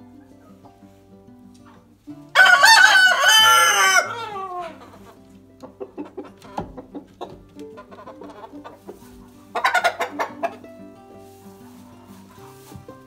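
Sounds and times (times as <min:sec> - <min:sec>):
rooster crowing: 0:02.4 - 0:04.8
soft hen clucks: 0:04.4 - 0:10.7.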